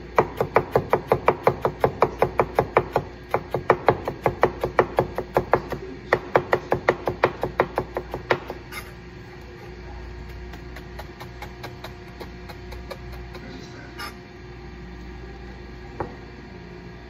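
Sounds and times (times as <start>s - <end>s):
knife chopping on plastic board: 0.2s - 8.6s.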